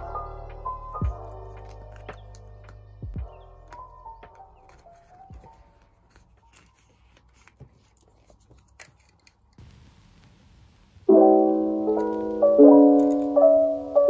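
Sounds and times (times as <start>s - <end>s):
lo-fi music with keyboard chords: 0.0s - 6.1s, 11.1s - 14.0s.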